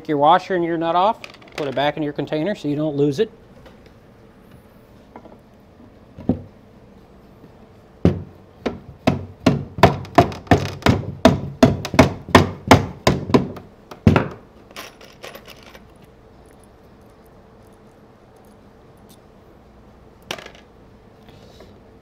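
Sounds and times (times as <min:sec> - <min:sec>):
rubber mallet tapping bolts: 0:08.0 - 0:14.4.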